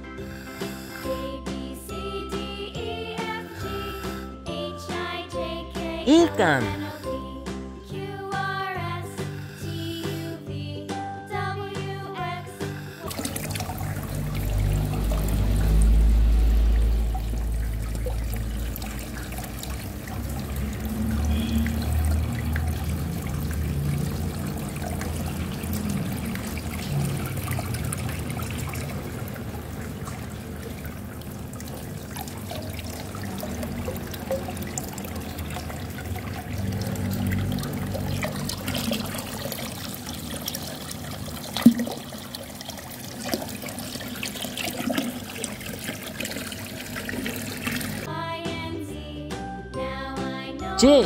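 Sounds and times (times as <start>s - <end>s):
churning bubbles: 12.7s - 48.1s
water pouring and trickling: 12.7s - 48.1s.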